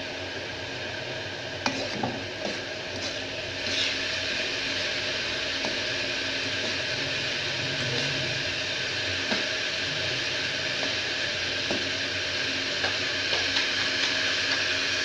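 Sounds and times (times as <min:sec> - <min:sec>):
vegetables sizzling in oil: 0:00.0 - 0:15.0
metal spatula scraping pan: 0:01.7 - 0:04.0.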